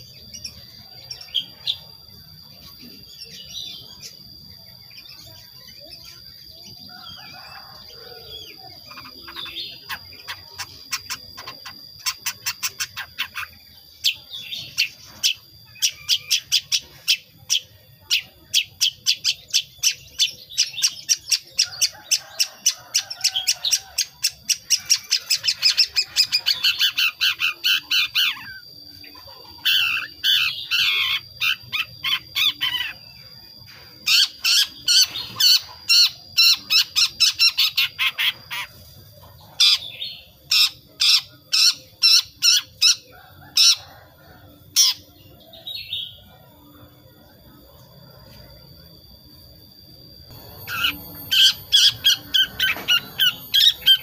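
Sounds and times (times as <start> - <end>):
bird harsh chattering: 8.9 - 17.3, 50.4 - 54.0.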